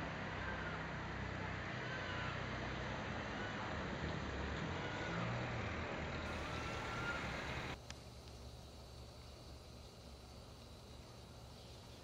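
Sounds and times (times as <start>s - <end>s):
engine idling: 6.2s - 7.9s
background hiss: 6.3s - 12.0s
faint high whistles: 6.4s - 7.4s.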